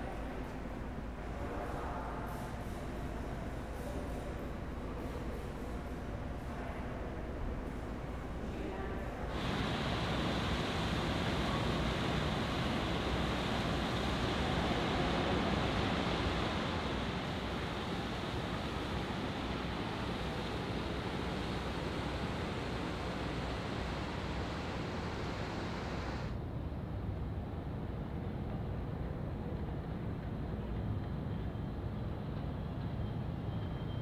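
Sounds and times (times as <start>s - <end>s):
rushing wind and water ambience: 9.1s - 26.4s.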